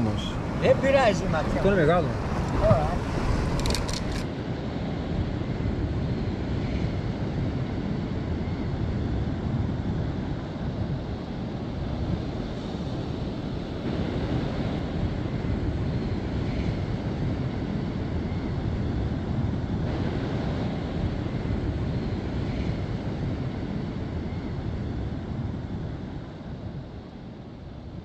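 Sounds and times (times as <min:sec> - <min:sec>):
surf washing: 0:00.0 - 0:04.4
wind blowing over microphone: 0:00.0 - 0:28.0.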